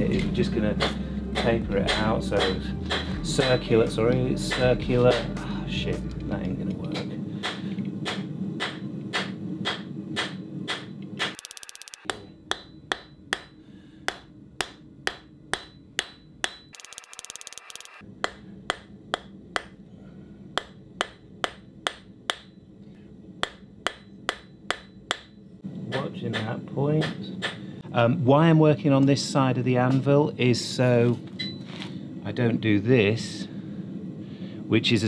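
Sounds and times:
hammer striking steel on anvil: 0.8 - 3.8, 7.4 - 11.4, 12.0 - 16.7, 18.2 - 19.8, 20.6 - 22.6, 23.4 - 27.6.

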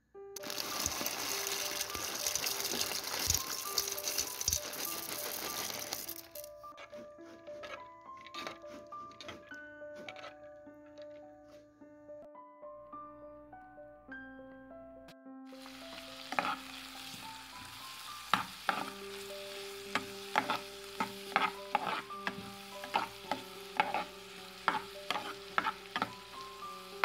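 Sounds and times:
vegetables sizzling in a frying pan: 0.4 - 6.4, 15.5 - 27.0
spatula scraping a pan: 6.7 - 10.5, 15.8 - 27.0.

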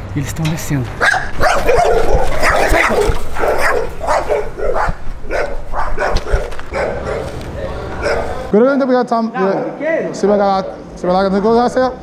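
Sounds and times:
dog barking: 1.0 - 8.5.

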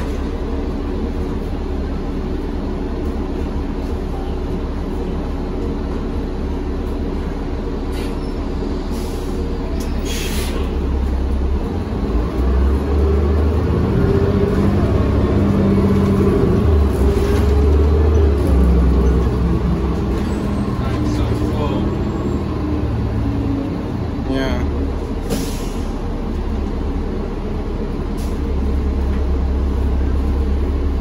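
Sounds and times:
bus engine droning: 0.0 - 31.0
brief hisses: 10.0 - 10.7.

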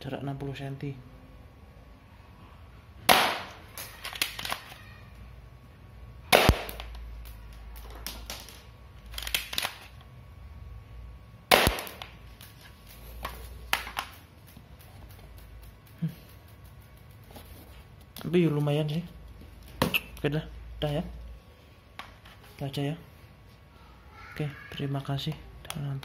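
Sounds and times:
toy pistol shots: 3.1 - 4.7, 6.3 - 7.0, 11.5 - 12.2.

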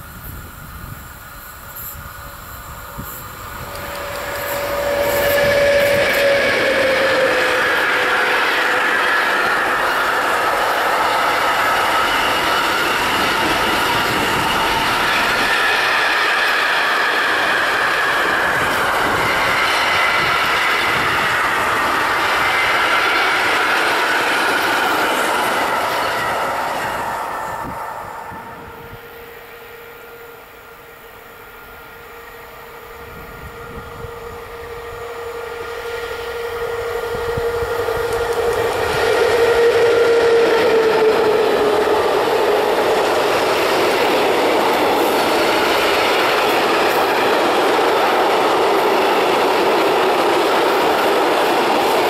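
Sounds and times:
train wheels rumbling on rails: 0.0 - 52.0
wheels squealing: 3.0 - 27.8.

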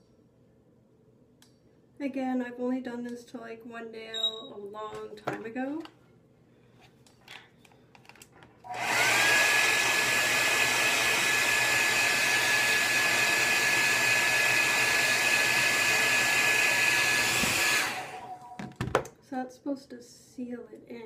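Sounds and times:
hair dryer blowing with whine: 8.7 - 18.6.

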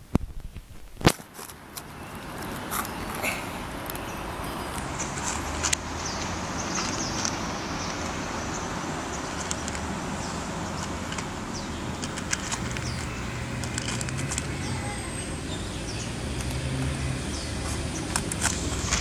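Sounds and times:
road traffic noise: 1.1 - 19.0
engine hum: 1.6 - 19.0
cat crunching dry kibble: 11.9 - 14.6.

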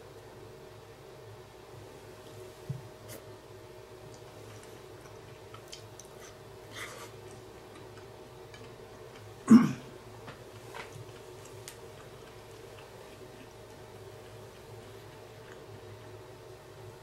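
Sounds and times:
steady low hum: 0.0 - 17.0
person chewing: 4.2 - 9.4, 10.6 - 16.2.

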